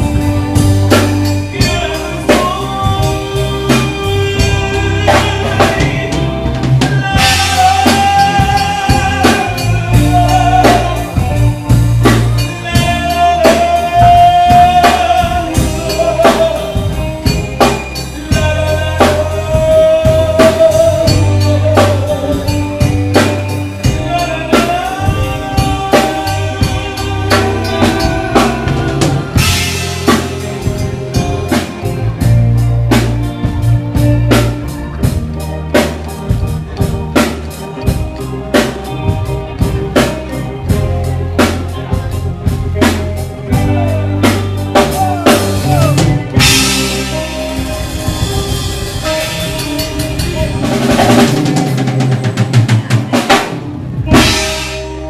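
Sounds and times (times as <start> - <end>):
live band playing: 0.0 - 55.0
men singing: 1.3 - 31.6, 43.4 - 47.7.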